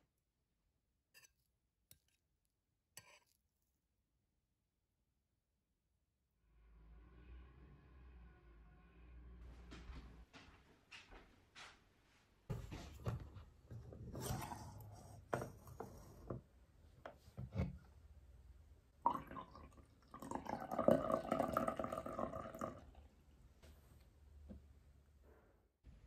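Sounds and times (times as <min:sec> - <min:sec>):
coffee pouring into a cup: 0:19.0 - 0:23.0.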